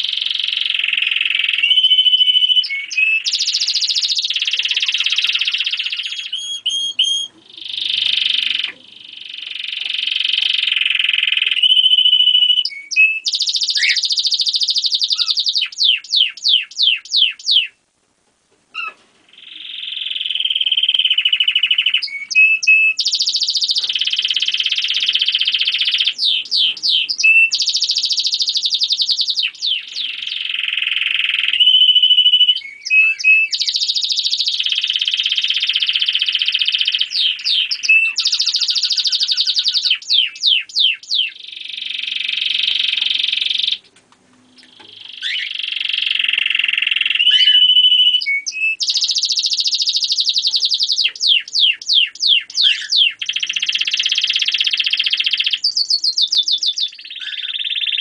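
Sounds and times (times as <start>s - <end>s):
canary singing trills: 0.0s - 17.8s, 18.7s - 58.0s.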